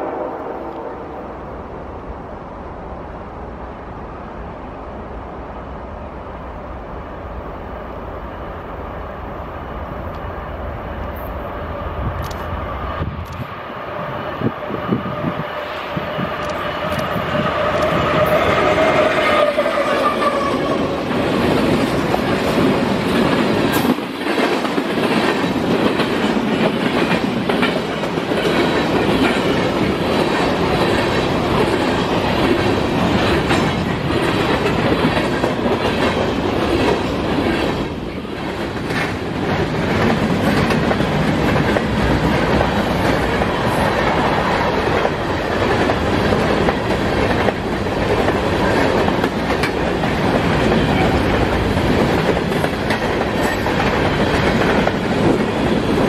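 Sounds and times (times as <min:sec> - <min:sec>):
diesel locomotives passing: 0:00.0 - 0:56.0
wheels clacking over rail joints: 0:16.2 - 0:56.0.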